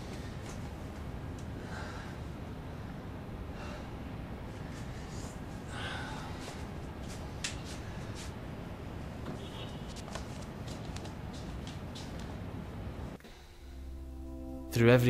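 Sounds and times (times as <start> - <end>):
man breathing: 1.5 - 8.4, 13.2 - 13.9
steady low hiss: 10.0 - 15.0.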